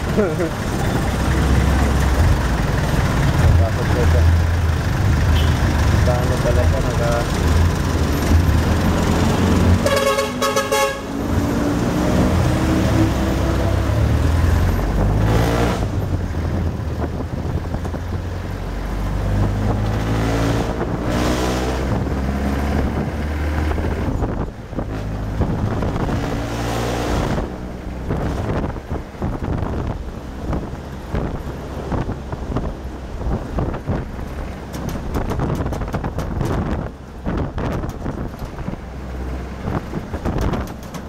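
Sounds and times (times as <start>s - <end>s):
vehicle engine speeding up: 0.0s - 10.3s, 11.0s - 40.8s
town traffic: 0.0s - 41.0s
car horn toot: 5.4s - 5.6s, 9.8s - 11.2s.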